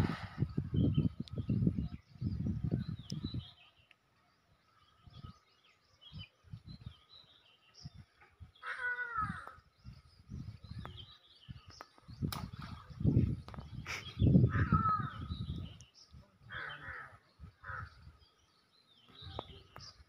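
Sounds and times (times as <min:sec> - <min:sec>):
small birds chirping: 0:00.4 - 0:20.0
crow cawing: 0:08.6 - 0:09.6, 0:16.5 - 0:17.9.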